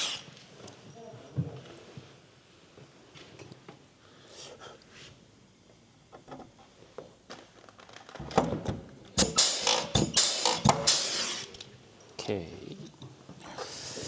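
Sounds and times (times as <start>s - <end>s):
rivet gun snap and air hiss: 0.0s - 0.3s, 9.2s - 11.7s.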